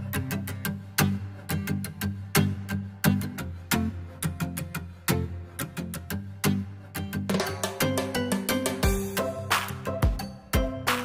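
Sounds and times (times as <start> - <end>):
held instrumental notes: 7.2 - 11.0
drum hits: 7.3 - 11.0.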